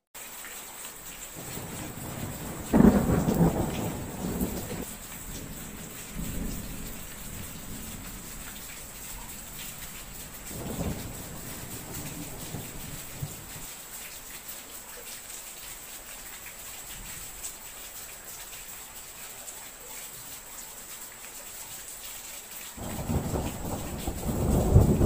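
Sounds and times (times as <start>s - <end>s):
steady rain: 0.0s - 25.0s
thunder rumbling: 1.4s - 13.6s, 22.8s - 25.0s.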